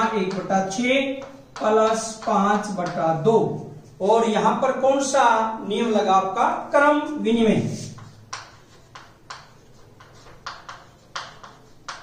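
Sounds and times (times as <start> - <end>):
chalk writing on chalkboard: 0.0 - 4.6, 7.7 - 12.0.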